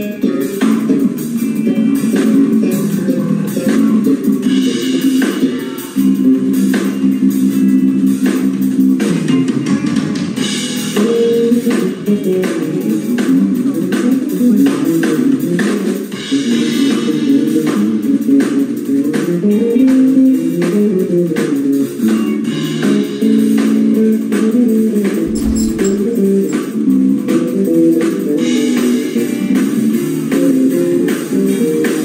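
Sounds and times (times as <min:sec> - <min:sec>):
bass guitar: 0:00.0 - 0:24.4, 0:25.2 - 0:32.0
drum kit: 0:25.2 - 0:26.9.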